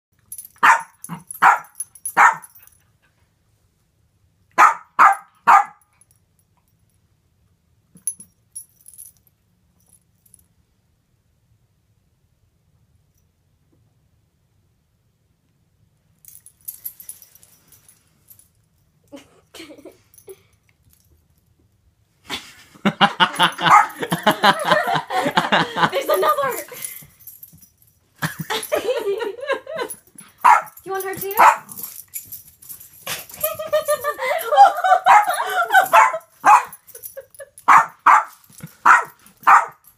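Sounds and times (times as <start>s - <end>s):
dog collar tags jingling: 0.2s - 2.9s, 8.0s - 10.5s, 25.9s - 39.9s
small dog barking: 0.6s - 2.5s, 4.6s - 5.8s, 23.6s - 24.0s, 30.4s - 30.8s, 31.4s - 31.8s, 35.1s - 36.8s, 37.7s - 39.8s.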